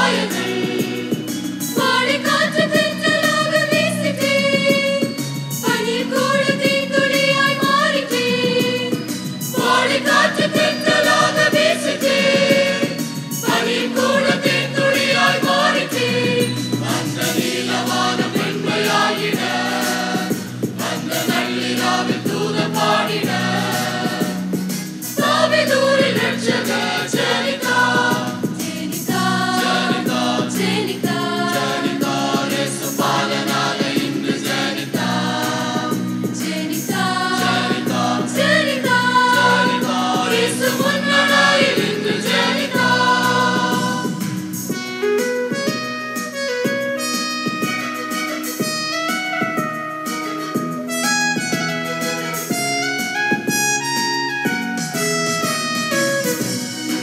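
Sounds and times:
mixed choir singing a carol: 0.0 - 44.6.

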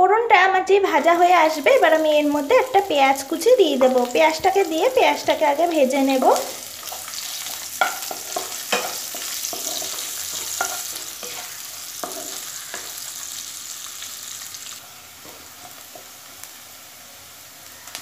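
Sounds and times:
onion sizzling in hot oil: 0.7 - 18.0
spatula scraping pan: 6.1 - 13.1.

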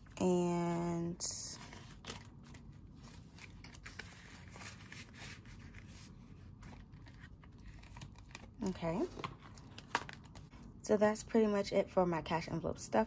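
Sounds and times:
paper banknotes rustling: 1.5 - 10.5.

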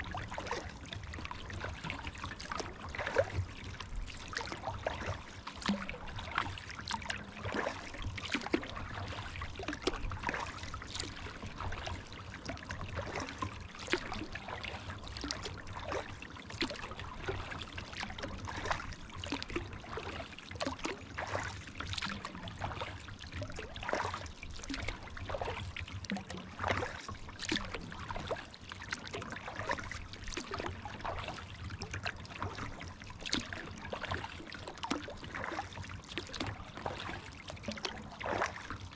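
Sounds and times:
paddle splashing in water: 0.0 - 38.9
water dripping off paddle: 0.1 - 38.9.

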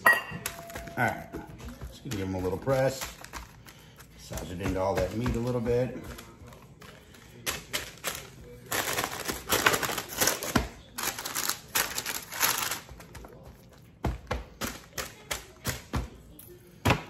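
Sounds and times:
palm patting meat: 0.4 - 8.4
hands rubbing meat on paper: 1.6 - 9.4.

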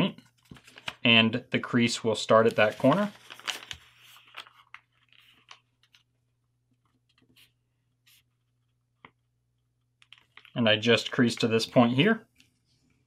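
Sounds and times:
paper rustling: 0.2 - 1.1, 2.3 - 6.1.

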